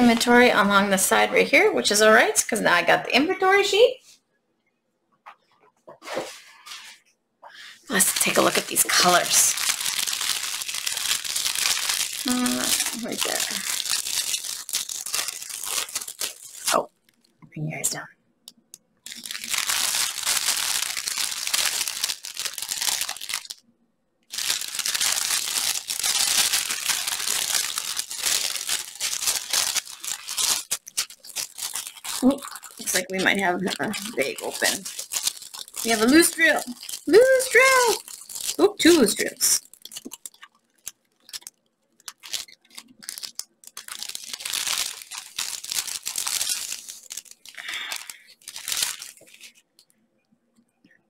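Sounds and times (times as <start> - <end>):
plastic bag crinkling: 0.0 - 1.0, 7.8 - 17.4, 18.6 - 23.6, 24.3 - 49.9.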